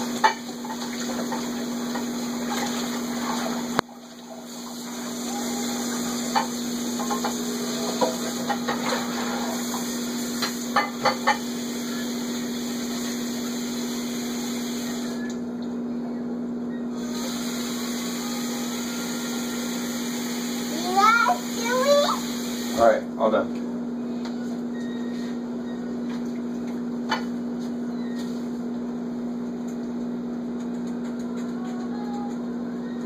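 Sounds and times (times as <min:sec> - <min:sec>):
water running into sink: 0:00.0 - 0:15.2, 0:17.0 - 0:22.8.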